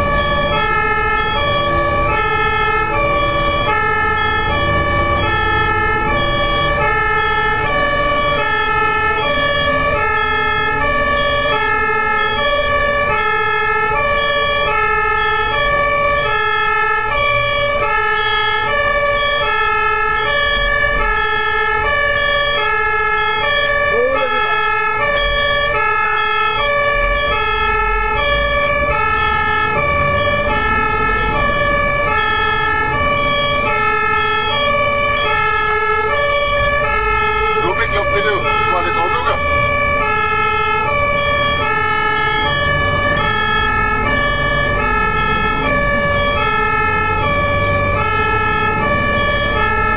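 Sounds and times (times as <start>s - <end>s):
two-tone siren: 0.0s - 49.9s
vehicle driving rumble: 20.3s - 49.9s.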